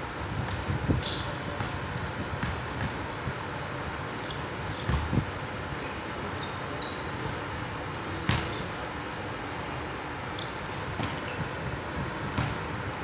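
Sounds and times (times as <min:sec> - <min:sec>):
basketball bouncing: 0:08.3 - 0:08.5, 0:12.4 - 0:12.6.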